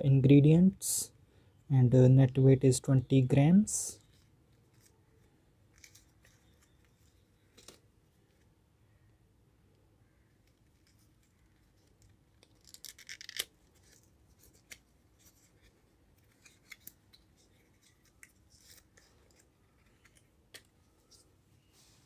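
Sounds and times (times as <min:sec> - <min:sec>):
faint clicks and rustles: 0:04.0 - 0:08.6, 0:10.2 - 0:22.0.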